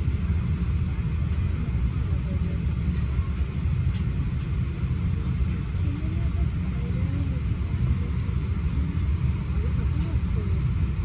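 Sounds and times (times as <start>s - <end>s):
airliner cabin rumble: 0.0s - 11.0s
faint passenger voices: 0.0s - 11.0s.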